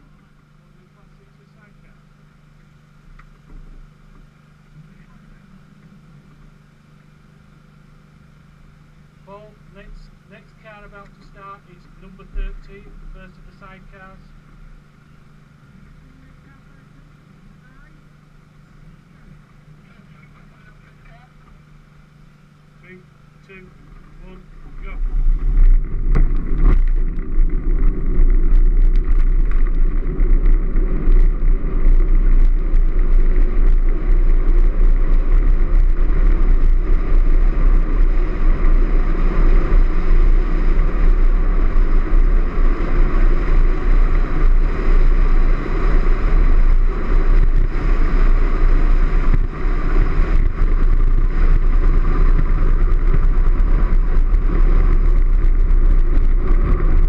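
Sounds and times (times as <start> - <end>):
wheels rumbling on road: 0.0 - 57.0
wind over camera: 23.5 - 57.0.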